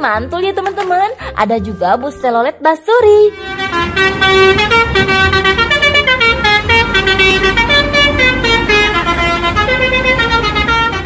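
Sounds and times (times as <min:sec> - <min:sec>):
multi-note bus horn tune: 0:03.2 - 0:11.0.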